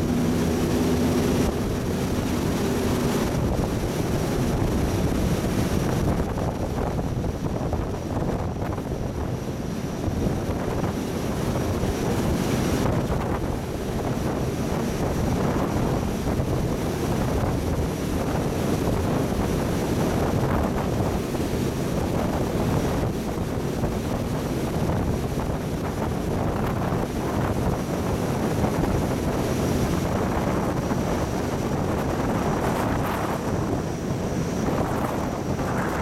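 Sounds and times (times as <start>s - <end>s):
deep engine rumble: 0.0s - 5.1s
churning water wake: 0.0s - 36.0s
wind on microphone: 0.0s - 36.0s.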